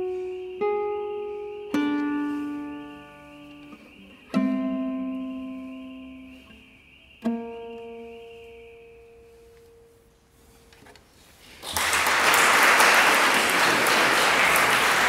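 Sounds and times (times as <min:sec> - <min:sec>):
classical guitar chord ringing: 0:00.0 - 0:06.6
audience applause: 0:11.6 - 0:15.0.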